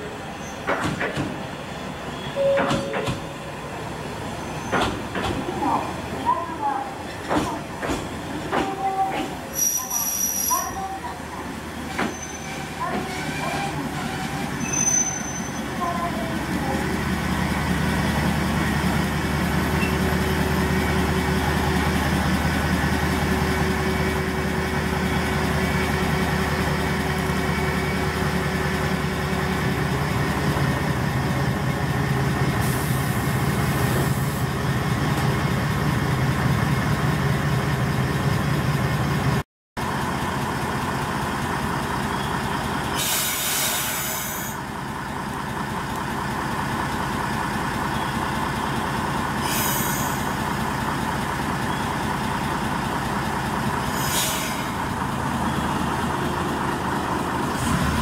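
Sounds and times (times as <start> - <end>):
diesel railcar engine idling: 0.0 - 58.0.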